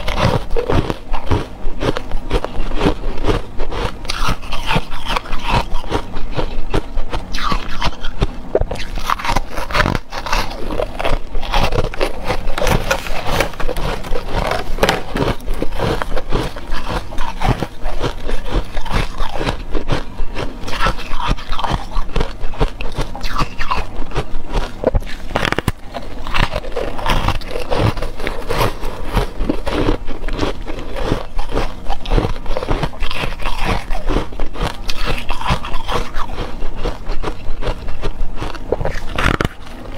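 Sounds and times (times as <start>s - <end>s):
ice crunching between teeth: 0.0s - 39.9s.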